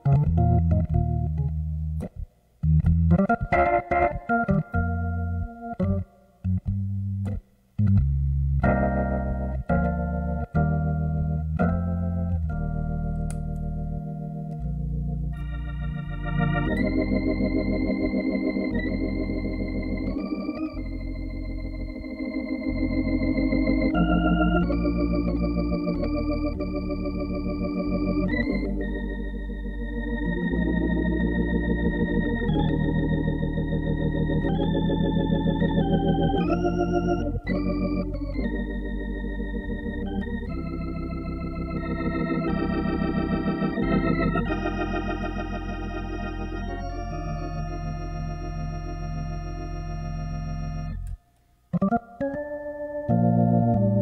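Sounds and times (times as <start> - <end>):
organ playing chords: 0.0 - 54.0.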